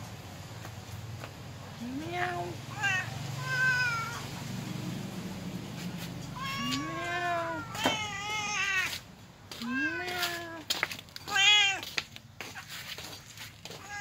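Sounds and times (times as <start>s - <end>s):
cats meowing: 1.8s - 4.4s, 6.2s - 9.0s, 9.6s - 11.9s, 13.7s - 14.0s.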